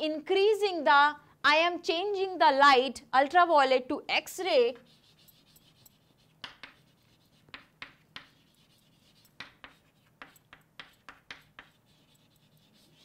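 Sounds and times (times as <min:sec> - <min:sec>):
pen scratching strokes: 0:04.8 - 0:13.0.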